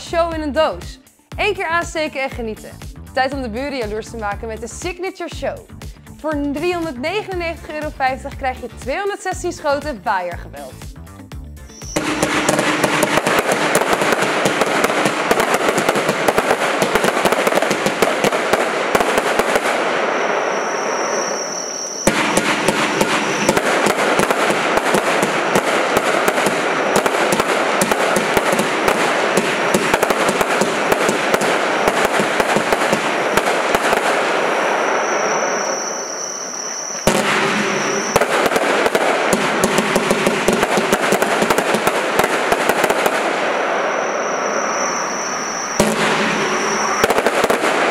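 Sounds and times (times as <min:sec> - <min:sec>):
high steady whistle: 0:11.6 - 0:13.5, 0:20.0 - 0:23.8, 0:34.3 - 0:38.4, 0:43.6 - 0:47.5
fireworks volleys of shots: 0:11.7 - 0:47.9.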